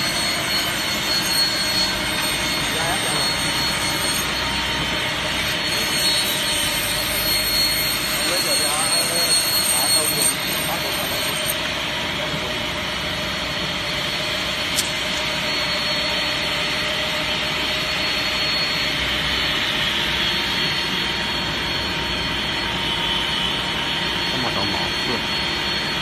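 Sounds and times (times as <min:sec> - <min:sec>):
rip saw running with high whine: 0:00.0 - 0:26.0
sharp click: 0:14.7 - 0:15.0.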